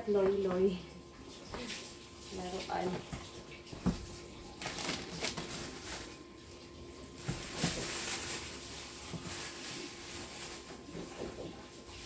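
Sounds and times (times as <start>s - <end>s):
rummaging in cardboard box: 2.4s - 12.0s.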